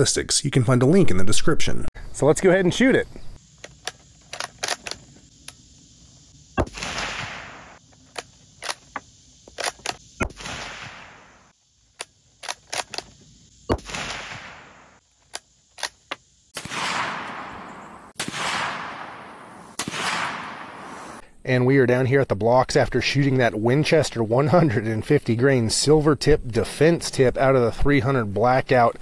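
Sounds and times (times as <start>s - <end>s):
rifle bolt clicks: 3.6s - 5.6s
rifle shots with echo: 6.6s - 7.8s, 10.2s - 11.4s, 13.7s - 14.9s, 16.6s - 21.2s.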